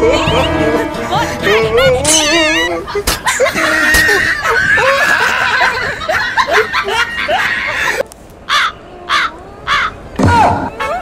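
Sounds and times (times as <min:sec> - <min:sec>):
people snickering and chuckling: 0:02.0 - 0:08.0.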